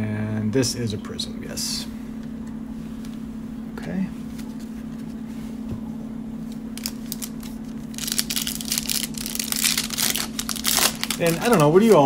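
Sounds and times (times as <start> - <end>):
steady low hum: 0.0 - 12.0
plastic wrapper crinkling and tearing: 6.7 - 12.0.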